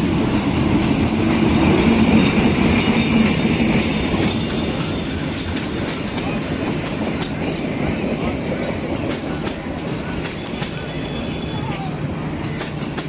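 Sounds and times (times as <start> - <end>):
diesel locomotive engine drone: 0.0 - 13.0
train wheels clacking over rail joints: 0.0 - 13.0.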